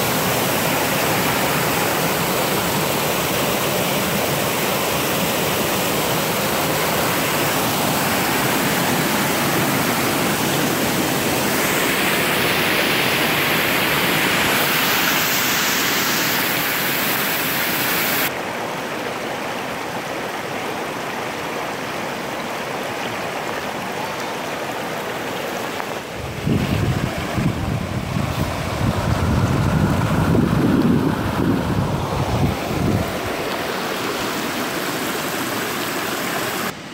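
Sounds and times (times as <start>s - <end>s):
water rushing over rocks: 0.0s - 36.9s
wind buffeting microphone: 26.1s - 33.5s.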